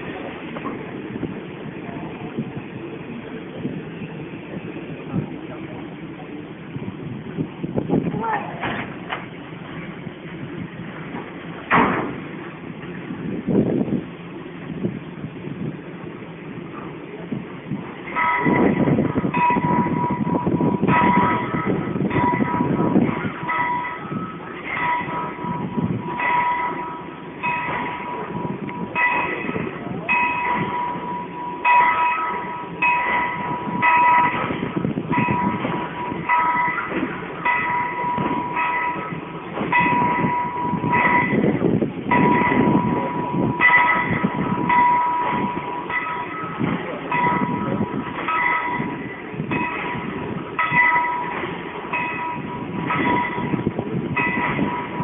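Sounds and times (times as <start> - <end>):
continuous rumble: 0.0 - 55.0
high ringing tones: 18.1 - 55.0.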